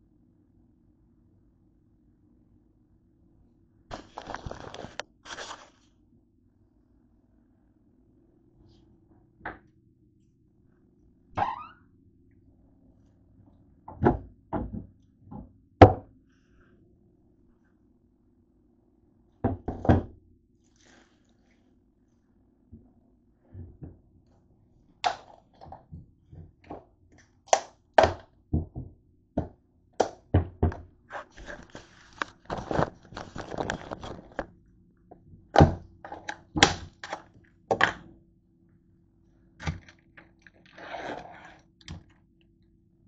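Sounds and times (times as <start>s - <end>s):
plastic rustling and scraping: 3.9s - 5.9s, 31.1s - 34.5s.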